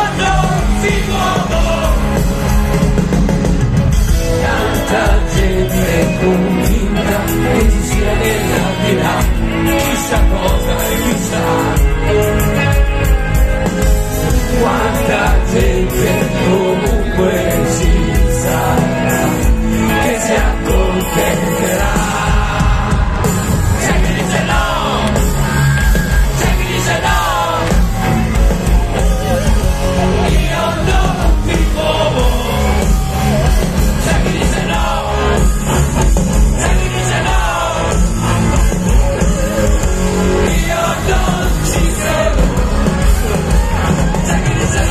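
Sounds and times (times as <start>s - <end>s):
live rock band: 0.0s - 44.9s.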